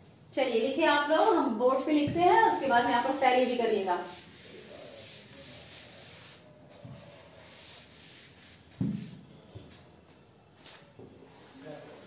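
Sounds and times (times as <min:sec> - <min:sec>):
chalkboard being wiped: 0:01.0 - 0:09.4, 0:11.2 - 0:12.0
thump: 0:08.8 - 0:09.1.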